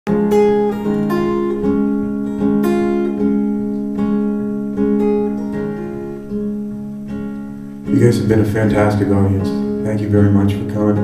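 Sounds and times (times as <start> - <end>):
acoustic guitar picking: 0.1 - 11.0.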